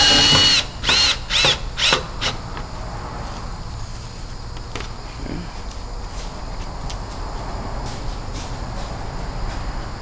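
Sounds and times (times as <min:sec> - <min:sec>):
cordless drill motor whine: 0:00.0 - 0:02.4.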